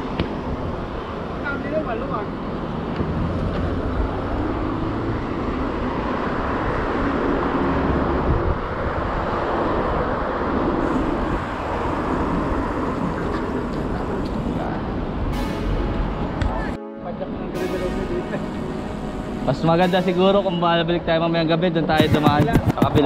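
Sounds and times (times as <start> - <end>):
vehicle engine hum: 0.0 - 16.8
cars passing on a road: 0.0 - 23.0.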